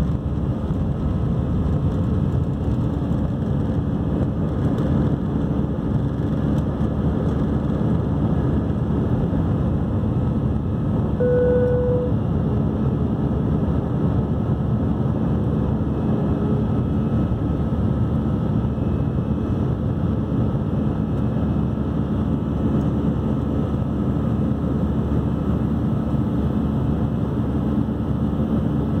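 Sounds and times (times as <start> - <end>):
brief steady tone: 11.2 - 12.2.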